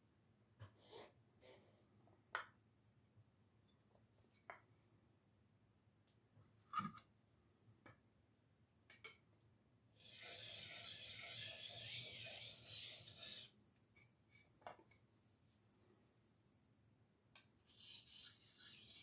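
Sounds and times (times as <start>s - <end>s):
sharpening stone scraping knife: 10.0s - 13.6s, 17.7s - 19.0s.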